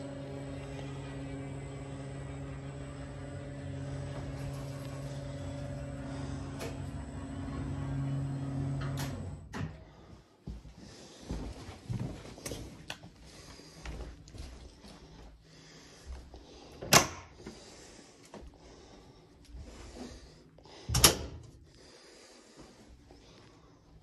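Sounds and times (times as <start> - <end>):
faint shuffling and handling: 10.1 - 16.4.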